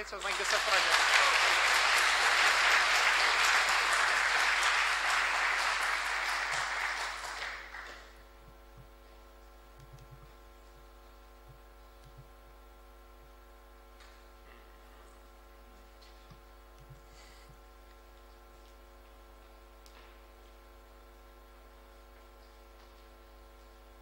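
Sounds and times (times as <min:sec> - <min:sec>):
audience applauding: 0:00.0 - 0:08.2
faint steady hum: 0:00.0 - 0:24.0.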